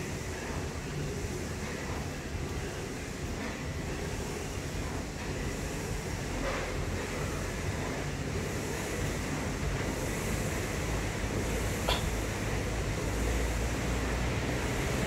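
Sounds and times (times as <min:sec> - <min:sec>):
fan flywheel whooshing: 0:00.0 - 0:15.0.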